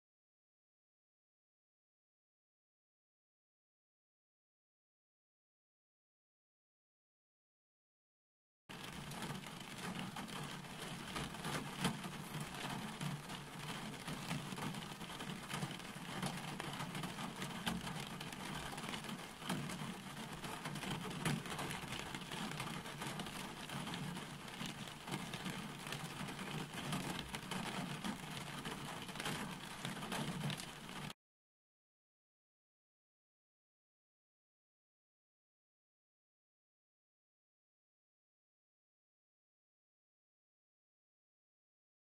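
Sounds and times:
steady rain falling: 8.7s - 31.2s.

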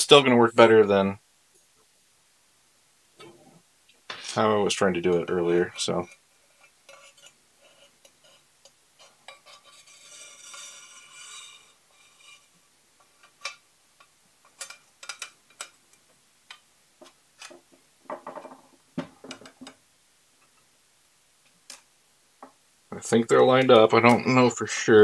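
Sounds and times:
metal rail scraping: 9.0s - 12.6s.

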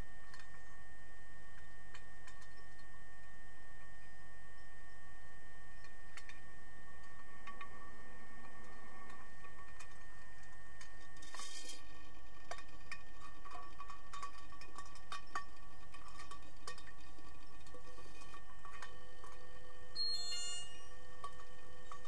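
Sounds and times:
underwater hum of thin tones: 0.0s - 22.0s
sharp underwater clicks and knocks: 12.4s - 19.4s.

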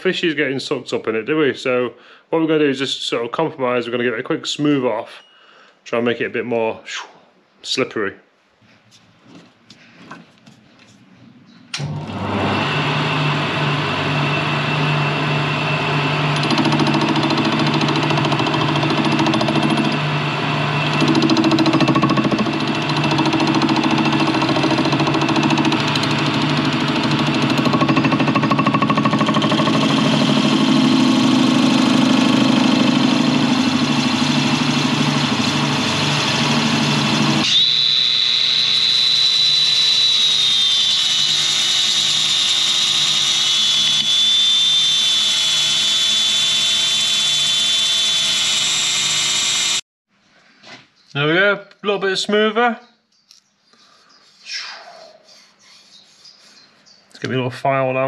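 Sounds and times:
angle grinder whine: 11.8s - 49.8s
metal lathe running: 11.8s - 49.8s.

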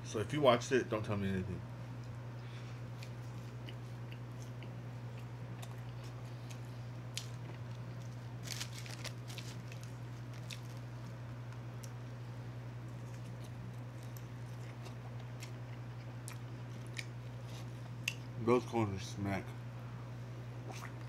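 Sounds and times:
low steady hum: 0.0s - 21.0s
man chewing chicken wing: 2.8s - 12.0s, 12.8s - 18.2s, 20.6s - 21.0s.

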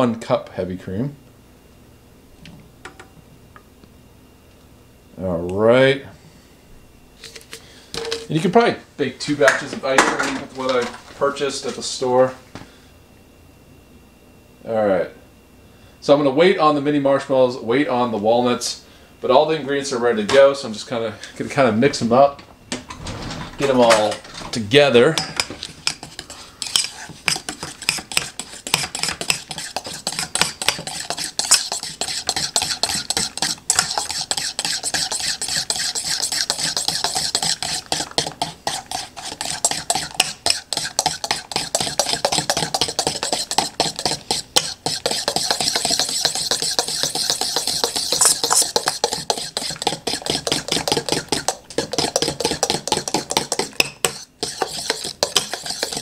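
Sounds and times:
fork scraping metal bowl: 25.2s - 56.0s.

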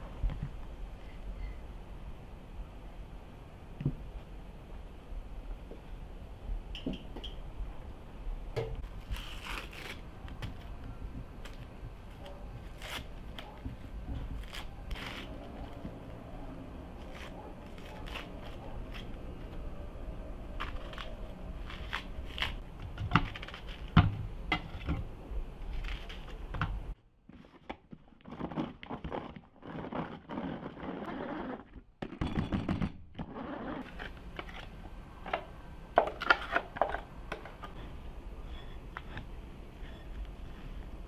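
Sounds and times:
knife cutting onion: 16.9s - 19.3s.

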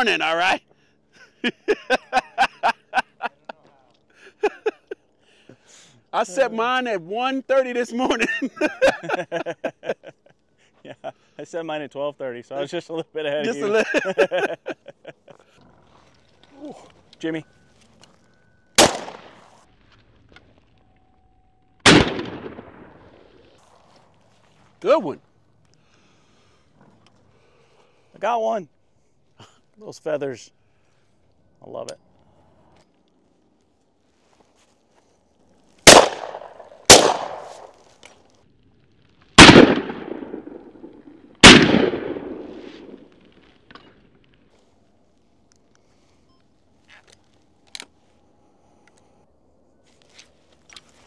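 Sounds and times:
shotgun shots: 18.8s - 19.6s, 21.8s - 23.4s, 35.8s - 37.8s, 39.4s - 43.1s.

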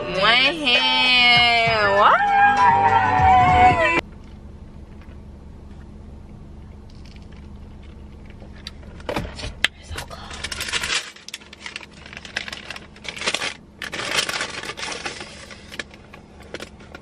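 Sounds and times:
low steady hum: 0.0s - 17.0s
paper bag crinkling: 10.2s - 16.0s.

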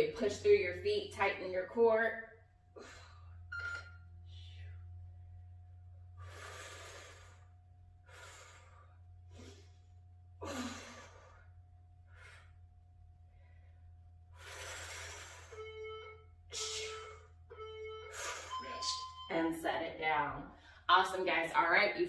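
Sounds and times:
woman breathing hard: 6.2s - 15.6s.

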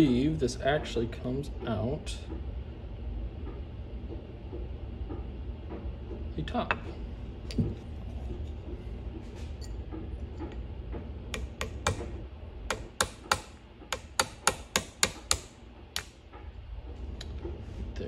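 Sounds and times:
small hammer tapping metal: 11.4s - 12.1s, 12.7s - 16.1s.

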